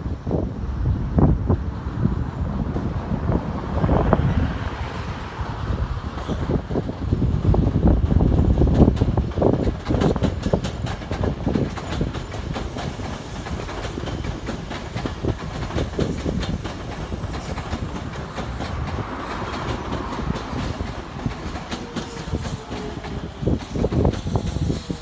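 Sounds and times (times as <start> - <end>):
electric train passing: 0.0 - 25.0
wheels clicking over rail joints: 6.0 - 25.0.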